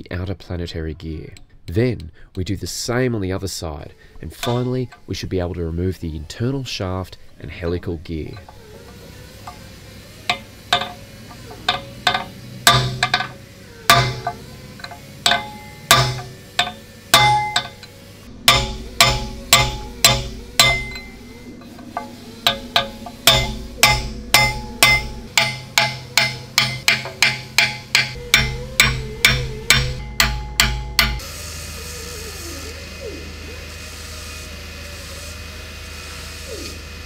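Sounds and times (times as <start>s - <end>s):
hammer striking steel drift: 4.4s - 5.1s, 8.3s - 31.3s.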